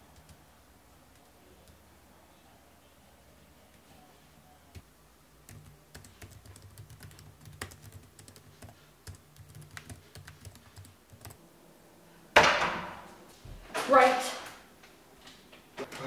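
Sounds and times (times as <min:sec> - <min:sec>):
laptop keyboard typing: 0:05.4 - 0:11.4.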